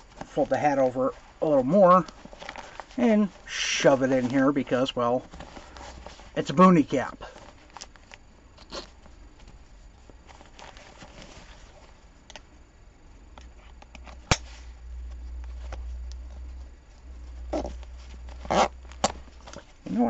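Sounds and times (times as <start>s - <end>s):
fabric rustling: 0.0s - 12.2s.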